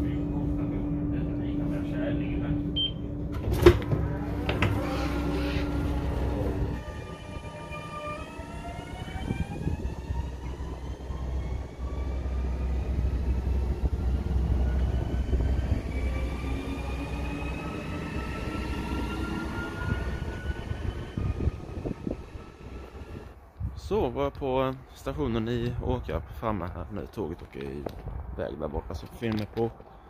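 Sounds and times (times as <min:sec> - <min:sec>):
low train rumble: 0:00.0 - 0:30.0
electric train motors whining: 0:03.2 - 0:23.4.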